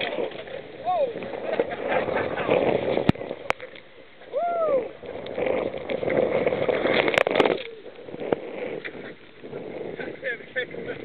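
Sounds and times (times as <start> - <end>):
waves splashing over boat bow: 0.0 - 11.0.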